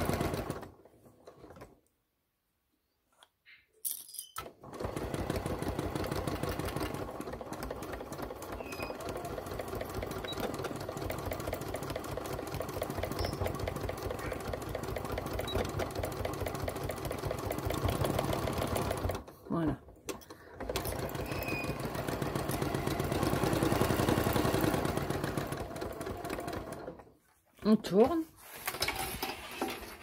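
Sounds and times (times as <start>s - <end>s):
sewing machine stitching: 0.0s - 1.8s, 4.4s - 27.2s, 28.5s - 30.0s.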